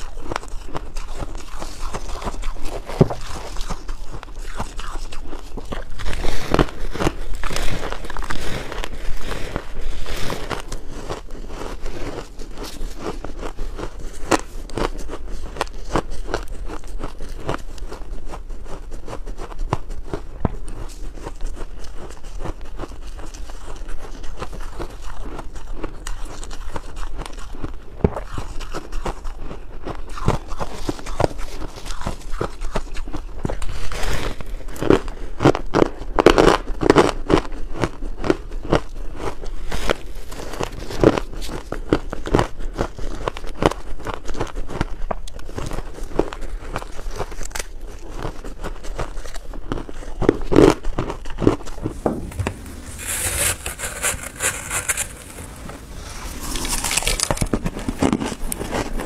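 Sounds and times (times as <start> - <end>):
crunching ice: 0.0 - 18.1, 19.2 - 59.0.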